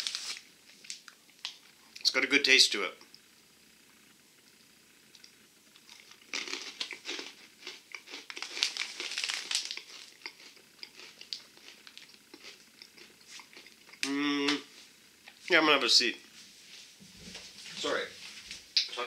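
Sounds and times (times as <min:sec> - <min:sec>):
plastic snack bag crinkling: 0:00.0 - 0:01.6, 0:05.9 - 0:12.6.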